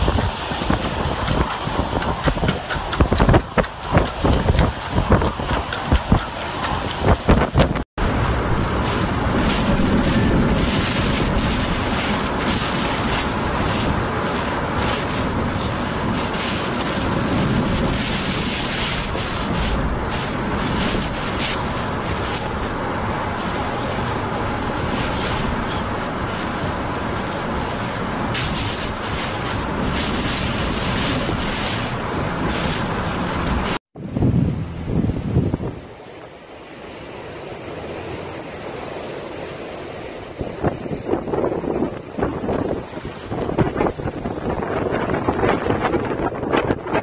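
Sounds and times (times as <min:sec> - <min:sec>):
driving rain: 0:00.0 - 0:33.9
hurricane wind blowing hard: 0:00.0 - 0:47.0.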